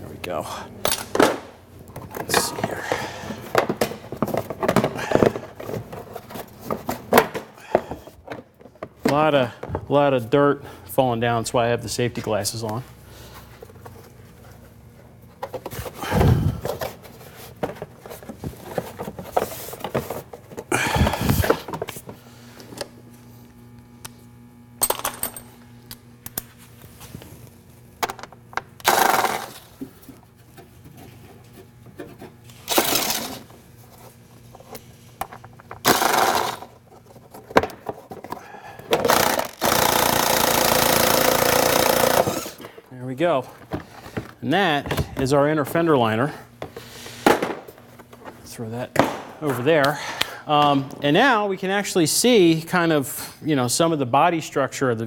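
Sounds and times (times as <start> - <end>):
power tool running: 28.8 - 29.8, 32.5 - 33.5, 35.8 - 36.8, 38.9 - 42.7.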